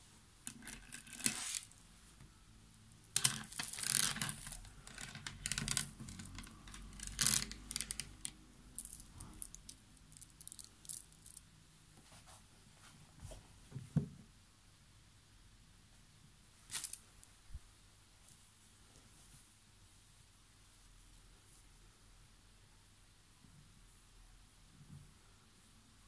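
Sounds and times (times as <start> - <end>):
cloth rustling and rubbing: 1.3 - 2.2.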